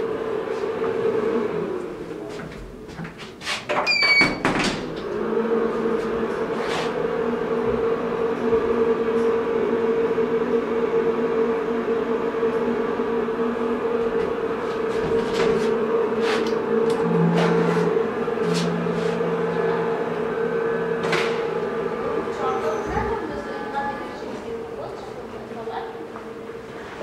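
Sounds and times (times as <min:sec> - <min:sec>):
elevator drive humming: 0:00.0 - 0:27.0.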